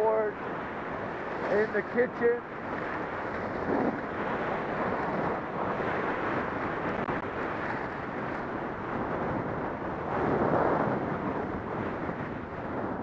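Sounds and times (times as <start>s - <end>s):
wind rushing over microphone: 0.0s - 13.0s.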